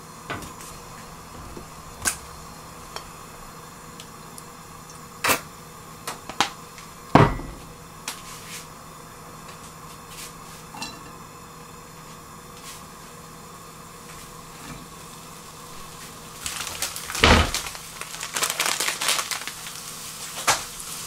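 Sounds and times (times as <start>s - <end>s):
faint steady hum: 0.0s - 21.0s
heavy thud: 0.5s - 4.0s.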